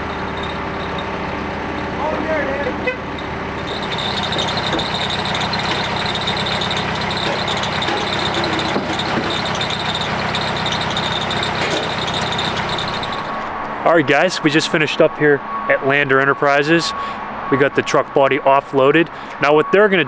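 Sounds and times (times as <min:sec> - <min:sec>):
diesel forklift engine running: 0:00.0 - 0:13.9
high whine: 0:00.0 - 0:13.9.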